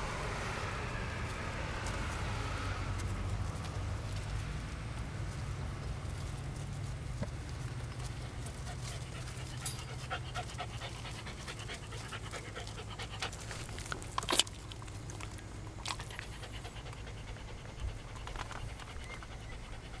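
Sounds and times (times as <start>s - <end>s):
dog panting: 7.8s - 20.0s.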